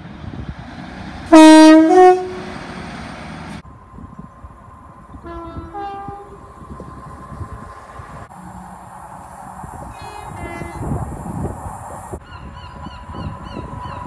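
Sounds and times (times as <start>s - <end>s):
fainter train two-tone horn: 1.3s - 2.6s, 5.2s - 6.6s, 9.9s - 11.1s
train two-tone horn: 1.3s - 2.6s, 5.2s - 6.6s, 9.9s - 11.1s.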